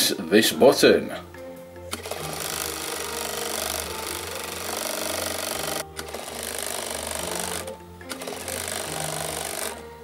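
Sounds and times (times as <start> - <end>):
small electric motor whirring: 1.9 - 9.8.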